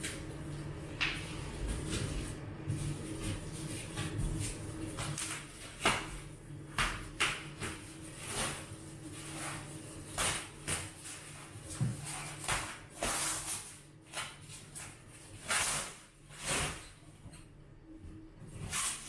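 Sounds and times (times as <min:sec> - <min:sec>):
bubble wrap rustling and crackling: 0:07.0 - 0:17.0.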